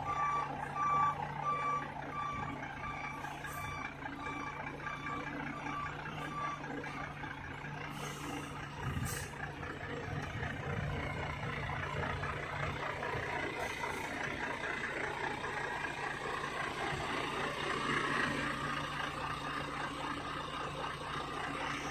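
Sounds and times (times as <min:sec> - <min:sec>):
reversing beeper: 0:00.0 - 0:09.3
truck engine running: 0:00.0 - 0:21.9.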